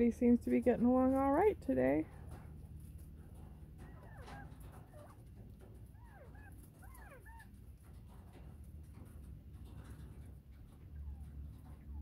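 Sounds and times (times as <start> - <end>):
quail whistled calls: 5.9 - 7.5.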